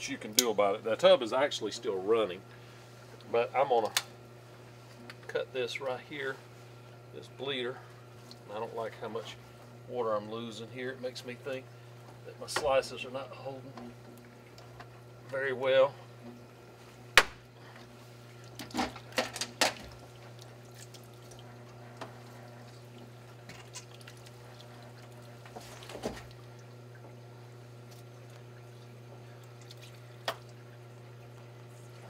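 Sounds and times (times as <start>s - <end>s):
water dripping and trickling: 18.2s - 31.7s.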